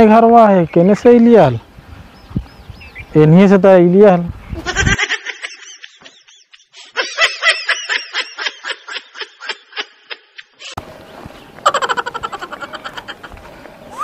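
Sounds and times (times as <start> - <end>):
comic snickering laughter: 4.6 - 10.8, 11.6 - 14.0.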